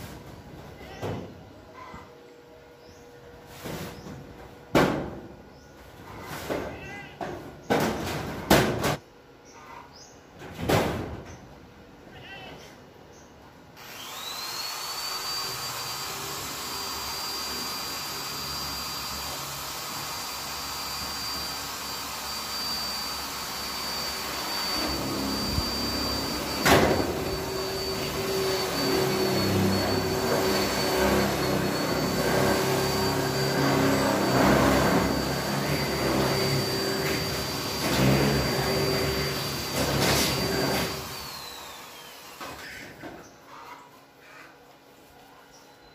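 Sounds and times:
power drill whining: 13.8 - 43.0.

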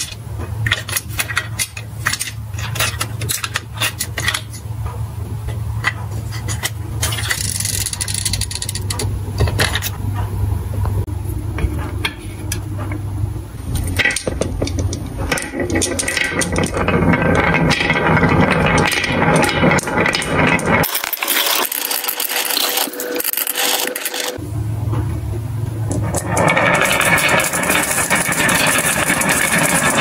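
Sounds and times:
marbles clattering on wooden track: 5.8 - 10.0, 13.8 - 24.4, 25.9 - 30.0.

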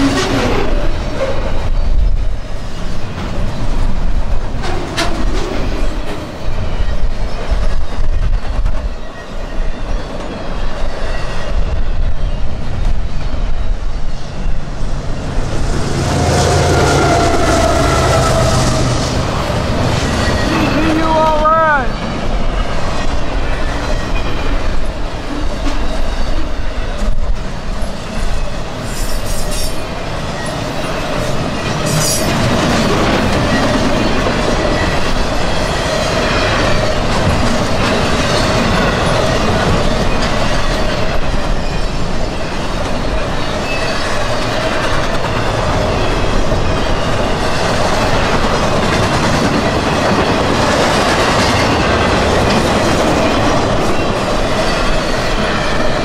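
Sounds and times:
freight train cars rolling past: 0.0 - 56.0
train wheels squealing: 4.6 - 56.0
wheels clacking over rail joints: 30.4 - 56.0.

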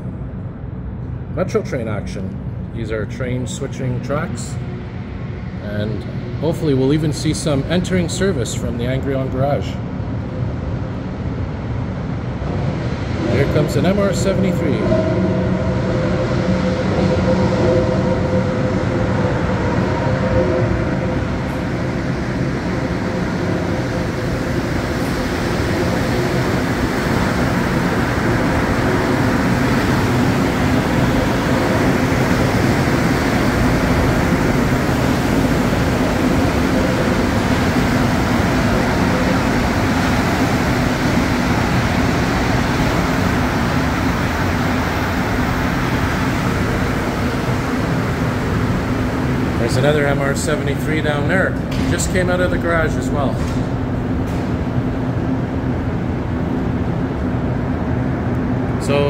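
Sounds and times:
metro train rumbling: 0.0 - 59.0.

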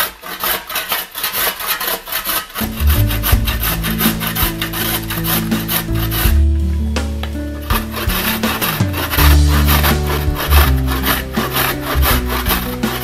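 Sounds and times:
carrot grated on metal grater: 0.0 - 6.4, 7.7 - 13.0
background music with bass line: 2.6 - 13.0.

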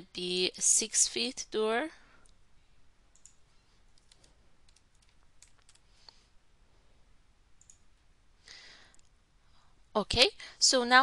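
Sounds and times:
keyboard and mouse clicks: 3.1 - 6.2, 7.6 - 7.9.

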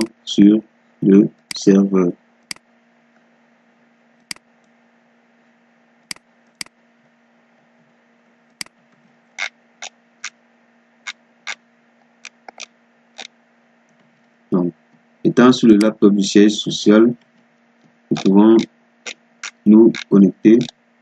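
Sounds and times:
faint low hum: 0.0 - 21.0
computer mouse clicking: 12.2 - 12.7, 19.4 - 20.8.

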